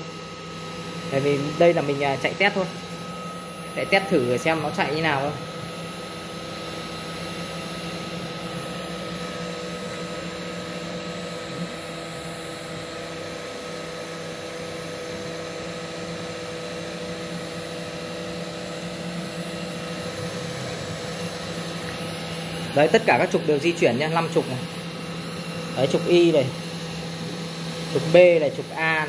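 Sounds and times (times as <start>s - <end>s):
cnc spindle motor whine: 0.0s - 29.0s.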